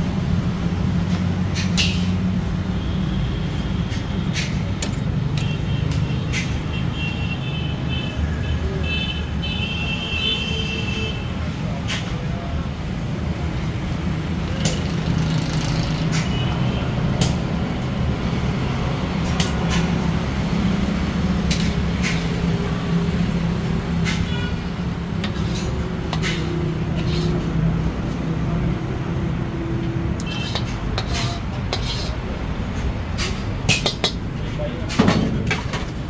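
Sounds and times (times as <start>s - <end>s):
wok burner and fan roaring: 0.0s - 7.2s, 11.3s - 36.0s
metal ladle scraping wok: 24.1s - 27.6s, 30.2s - 32.3s.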